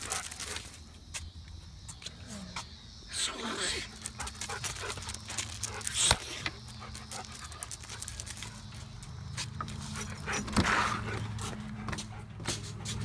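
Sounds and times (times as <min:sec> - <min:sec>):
scuffing and clicks of movement: 0:03.9 - 0:13.0.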